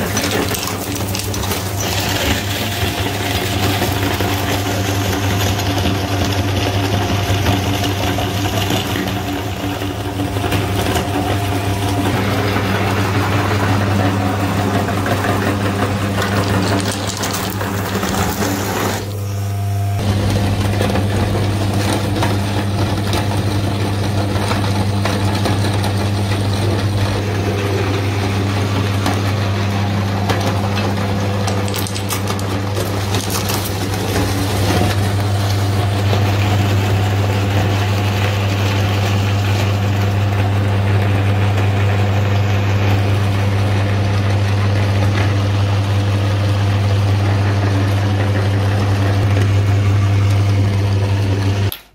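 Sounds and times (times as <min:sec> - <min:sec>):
electric meat grinder humming: 0:00.0 - 0:51.8
hard candy crunching and cracking: 0:31.4 - 0:35.4.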